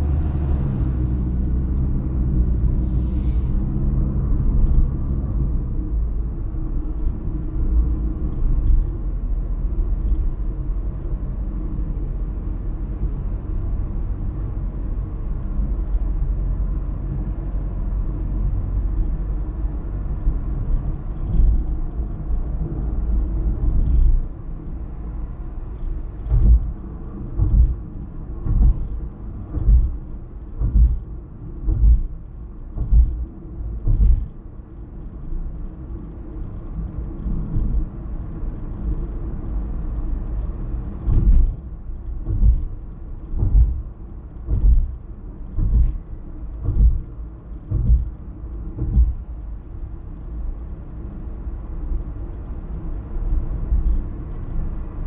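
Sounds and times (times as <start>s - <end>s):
car road and engine rumble: 0.0s - 55.0s
low thumps: 26.2s - 34.4s, 41.0s - 49.4s.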